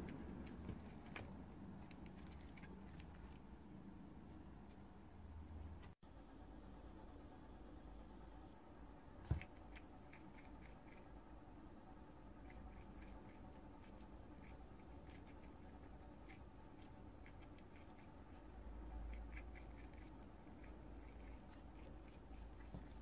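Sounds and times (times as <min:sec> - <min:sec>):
crunchy nibbling clicks: 0:00.0 - 0:03.5.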